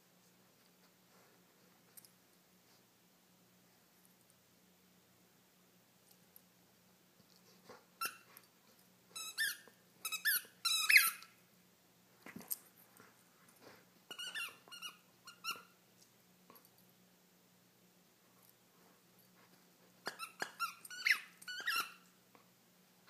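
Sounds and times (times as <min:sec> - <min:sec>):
squeaky dog toy squeaking: 0:08.0 - 0:08.3, 0:09.2 - 0:11.3, 0:14.1 - 0:15.7, 0:20.0 - 0:22.1.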